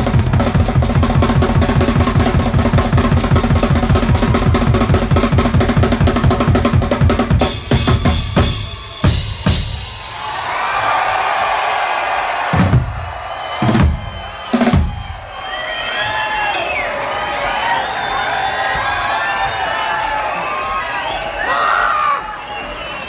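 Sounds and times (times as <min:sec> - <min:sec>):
rock drum kit played fast: 0:00.0 - 0:10.5, 0:12.5 - 0:15.2.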